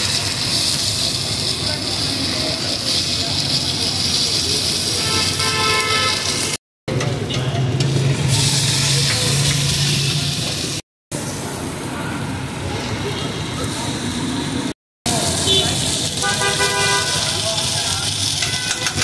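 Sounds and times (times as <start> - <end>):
griddle sizzling hiss: 0.0 - 6.6, 7.9 - 19.0
traffic: 0.0 - 19.0
vehicle horn: 5.0 - 6.4, 15.4 - 17.4.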